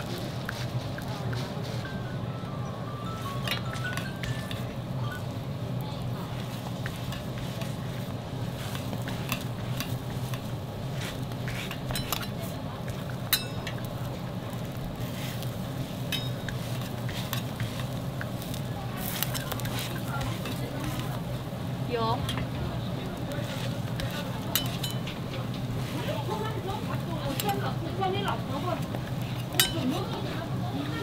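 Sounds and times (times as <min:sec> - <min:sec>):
steady low hum: 0:00.0 - 0:31.0
pancakes sizzling in oil: 0:03.8 - 0:31.0
metal spatula clinking and scraping: 0:08.7 - 0:13.9, 0:15.0 - 0:21.2, 0:23.4 - 0:30.5.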